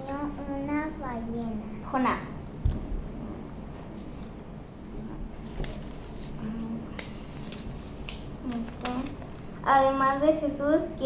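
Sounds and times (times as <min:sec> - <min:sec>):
paper rustling and crinkling: 0:05.4 - 0:09.6.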